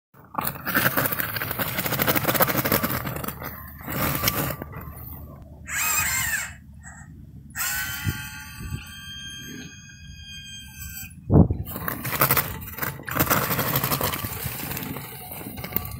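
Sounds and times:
snow plow crunching snow: 0.2 - 5.4, 11.6 - 15.9
motor whine: 2.8 - 15.9.

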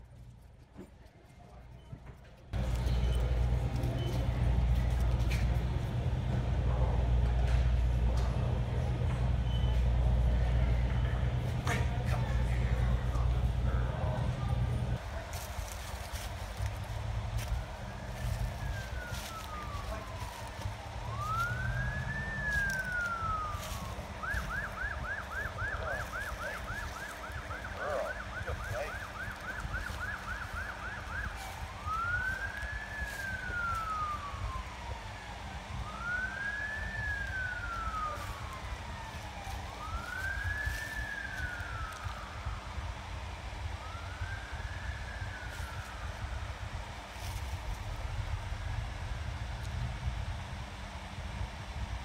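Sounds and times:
low steady rumble: 2.4 - 52.0
emergency siren wailing and yelping: 13.0 - 49.8.

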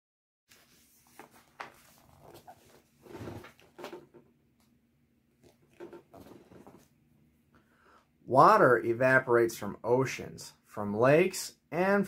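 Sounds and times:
book pages rustling: 0.5 - 4.2, 5.4 - 7.0.

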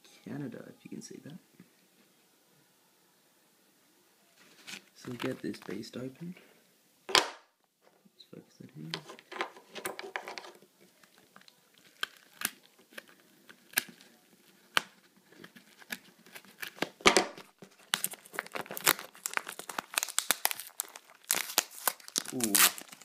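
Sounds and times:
paper crinkling and tearing: 10.0 - 23.0.

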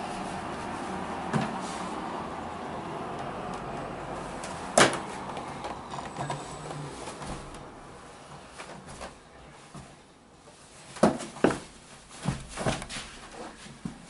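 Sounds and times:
soft scuffing on carpet: 8.4 - 14.0.

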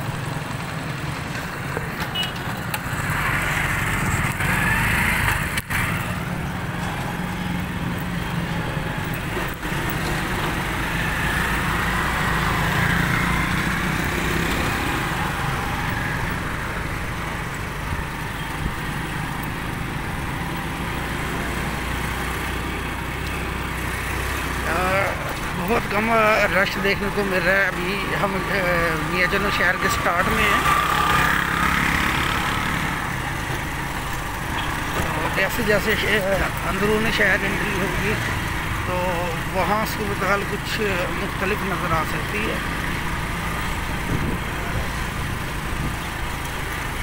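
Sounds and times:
road noise: 0.0 - 47.0
small vehicle engine running: 0.0 - 47.0
wind noise: 43.9 - 46.0.

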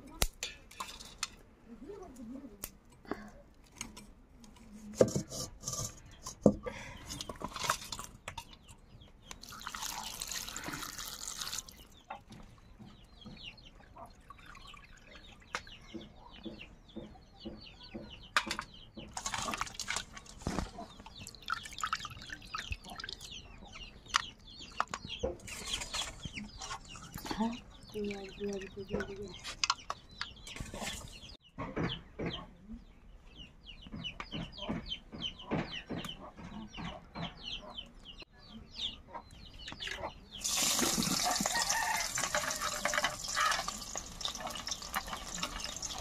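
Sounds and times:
water splashing in metal bowl: 9.4 - 11.9, 21.2 - 23.3, 40.4 - 46.0
chickens clucking: 11.8 - 21.5, 22.2 - 46.0.

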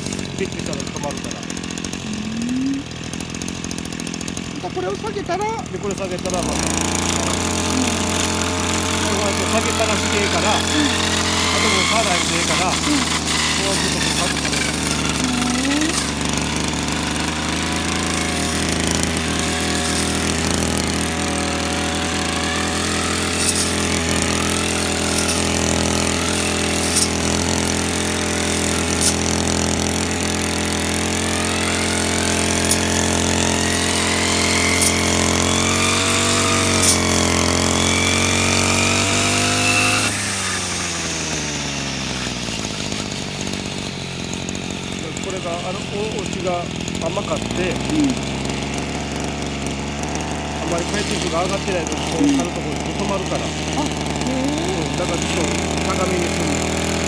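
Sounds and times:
brush cutter mowing grass: 0.0 - 57.0.

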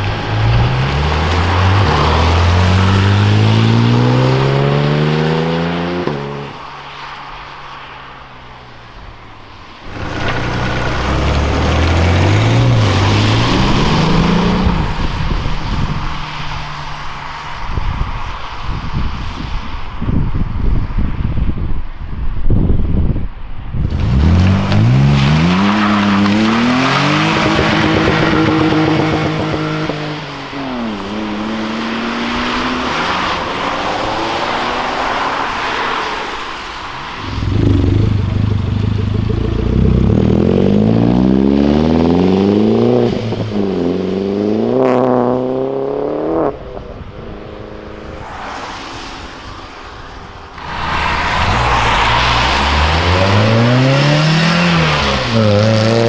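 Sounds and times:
cars accelerating on wet road: 0.0 - 19.9, 23.8 - 56.0
engine revving high: 37.2 - 46.6, 50.6 - 56.0.

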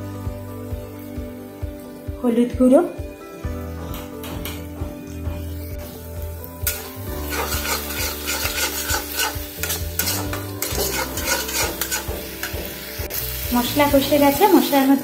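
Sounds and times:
paste sizzling in oil: 5.5 - 15.0
spatula scraping a pan: 6.6 - 13.5.

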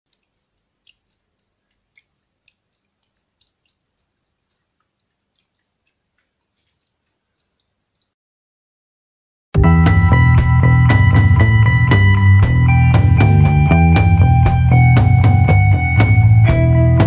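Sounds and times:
water dripping into small buckets: 0.1 - 8.2.

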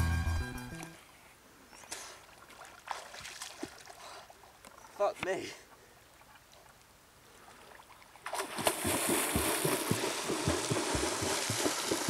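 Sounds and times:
low buffeting thuds: 8.9 - 12.0.

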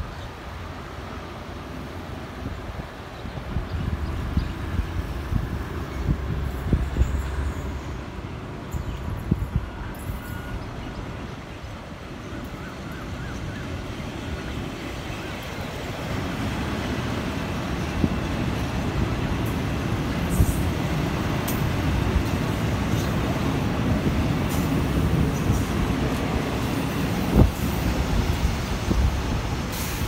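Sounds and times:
train rumbling past: 0.0 - 30.0.

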